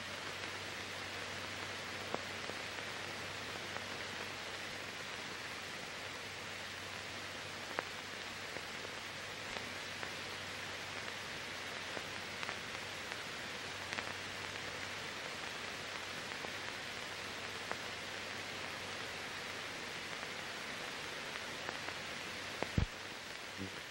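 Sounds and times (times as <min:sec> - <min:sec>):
film hiss: 0:00.0 - 0:23.9.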